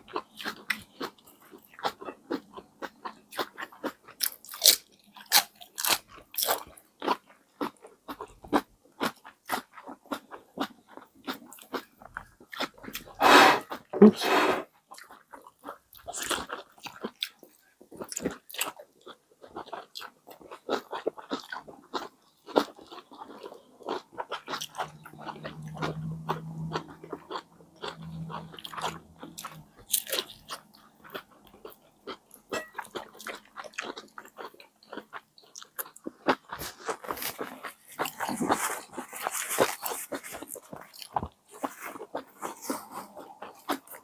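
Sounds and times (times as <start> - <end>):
wet chewing: 14.9 - 44.0.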